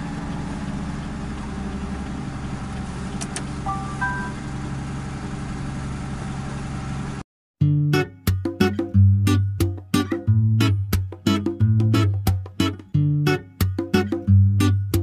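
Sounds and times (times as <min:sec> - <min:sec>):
truck engine and road noise: 0:00.0 - 0:07.2
guitar background music: 0:03.7 - 0:04.4, 0:07.6 - 0:15.0
rising three-note electronic chime: 0:03.7 - 0:04.7.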